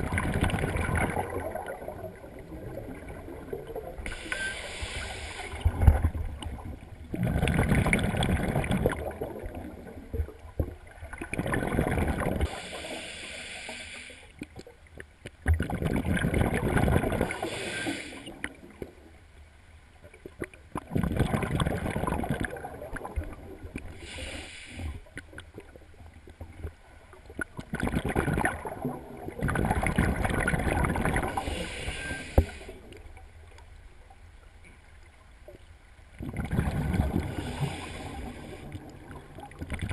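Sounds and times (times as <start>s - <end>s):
regulator inhalation hiss: 4.1s - 5.6s, 12.5s - 14.3s, 17.4s - 18.3s, 24.0s - 25.0s, 31.4s - 32.9s, 37.4s - 38.7s
bubbling exhalations underwater: 5.7s - 10.0s, 11.1s - 12.5s, 15.5s - 17.4s, 20.4s - 23.5s, 27.4s - 31.5s, 36.2s - 37.7s.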